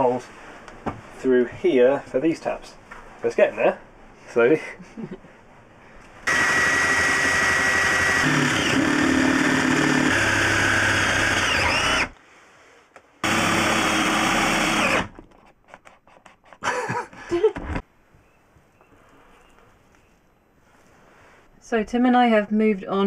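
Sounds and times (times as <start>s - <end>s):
cordless drill boring wood: 6.2s - 12.2s, 13.2s - 15.1s.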